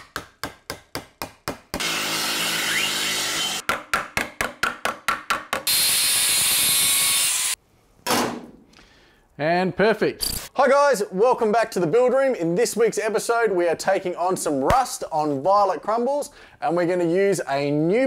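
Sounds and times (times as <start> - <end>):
power tool running: 1.8 - 3.6, 5.7 - 7.6.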